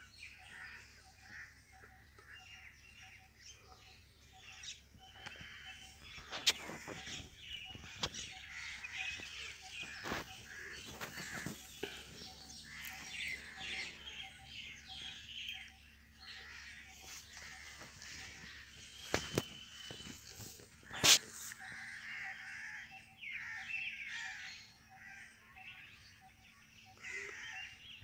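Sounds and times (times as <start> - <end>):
birds chirping and calling: 0.0 - 28.0.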